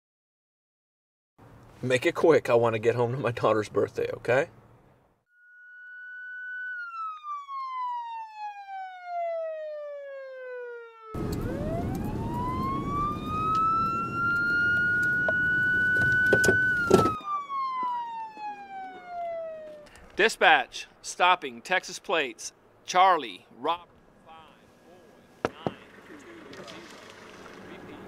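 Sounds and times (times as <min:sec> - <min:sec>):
car engine and road noise: 0:01.4 - 0:05.2, 0:11.1 - 0:20.3, 0:23.9 - 0:28.0
police siren wailing: 0:05.4 - 0:20.1
knocks: 0:25.4 - 0:25.8.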